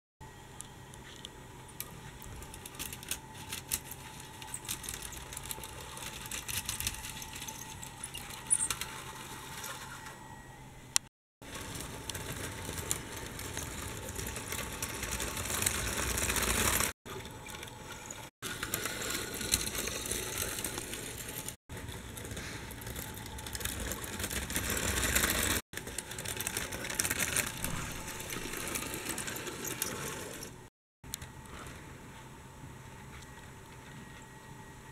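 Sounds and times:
model train wheels clattering on rails: 11.4 - 30.6.

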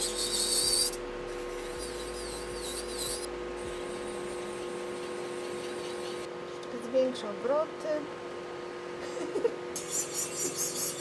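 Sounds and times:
nail drill grinding rasp: 0.0 - 1.0, 1.6 - 6.2, 9.8 - 11.0
steady motor hum: 0.0 - 11.0.

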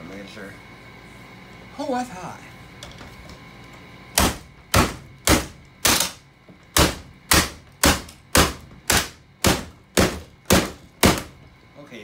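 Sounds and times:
hammer striking plastic: 4.2 - 11.3.

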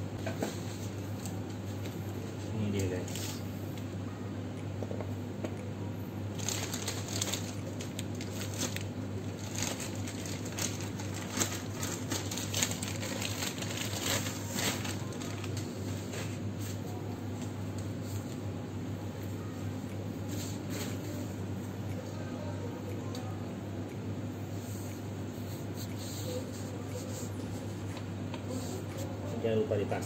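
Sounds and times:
steady low hum: 0.0 - 30.0
plastic bag crinkling: 6.3 - 15.6.

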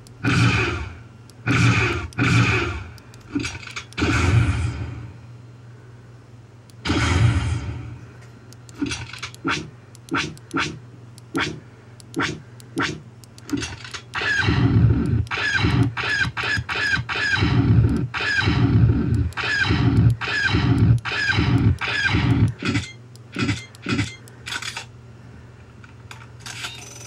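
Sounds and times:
blaster shot sound effects: 6.8 - 7.8.

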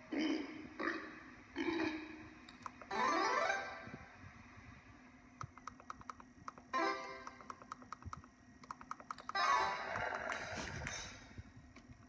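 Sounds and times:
rapid electronic ticks: 5.4 - 10.4.

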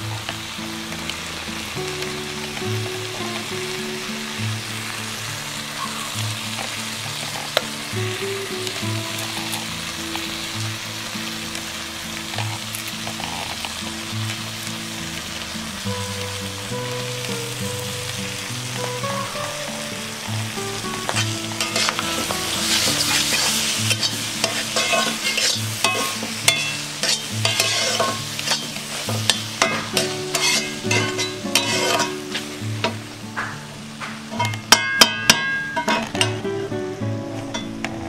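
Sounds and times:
oil sizzling: 0.0 - 38.0
metal spatula scraping pan: 21.1 - 33.0.

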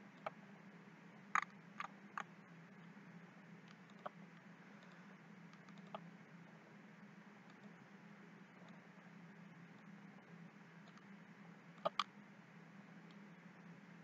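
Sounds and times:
faint low hum: 0.0 - 14.0
mouse and keyboard clicks: 1.4 - 2.3, 3.7 - 4.2, 4.8 - 6.0, 11.8 - 12.1.

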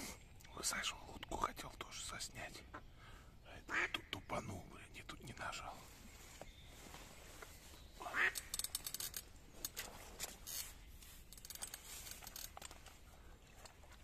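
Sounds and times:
duck quacking: 3.7 - 4.1, 8.0 - 8.5.

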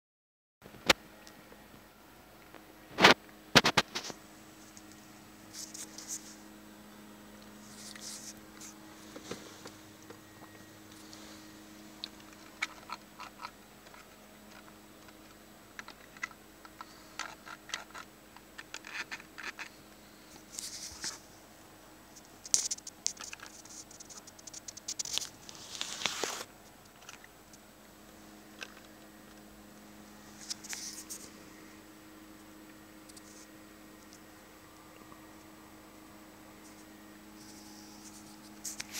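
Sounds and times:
faint steady hum: 0.6 - 38.9
handling clicks and scratchy rustles: 2.5 - 6.4, 7.4 - 21.3, 22.1 - 27.7, 28.4 - 31.5, 36.6 - 38.9.

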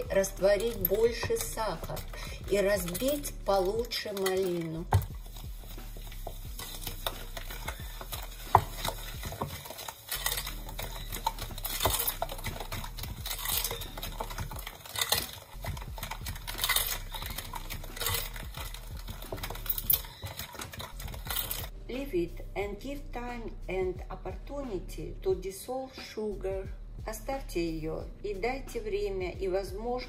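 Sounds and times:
wooden spoon scraping glass bowl: 0.0 - 21.7.

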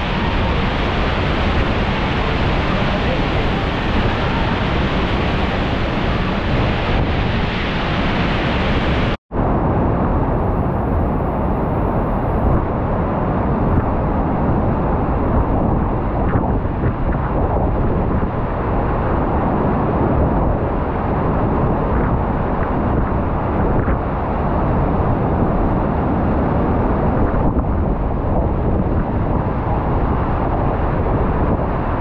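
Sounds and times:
waterfall roaring: 0.0 - 9.2.

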